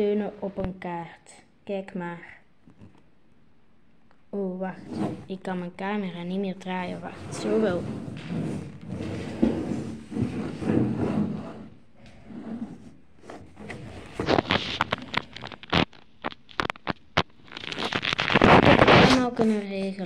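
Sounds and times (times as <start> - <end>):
phone rubbing and scraping: 4.7 - 5.4, 6.7 - 19.5
sharp clicks and rustles: 13.3 - 19.3.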